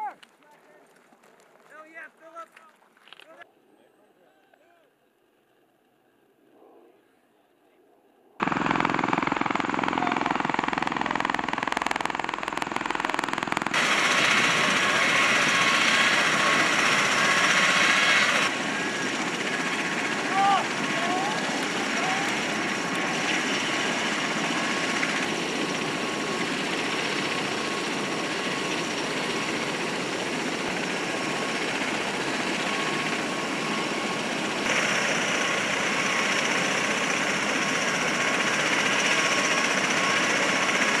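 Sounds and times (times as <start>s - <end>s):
rotor and engine rush: 8.4s - 41.0s
turbine whine: 8.4s - 41.0s.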